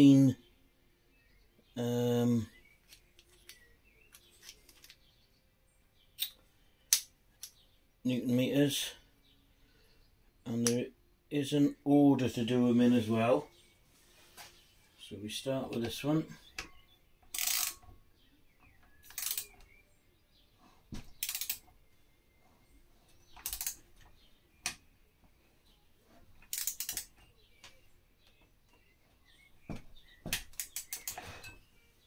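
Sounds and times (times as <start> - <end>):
torque wrench ratchet clicking: 17.3 - 17.8, 19.0 - 19.5, 21.2 - 21.6, 23.4 - 23.8, 26.5 - 27.1, 30.5 - 31.2.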